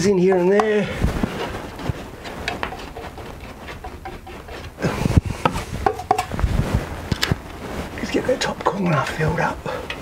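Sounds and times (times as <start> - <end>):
palette knife scraping canvas: 1.2 - 5.7.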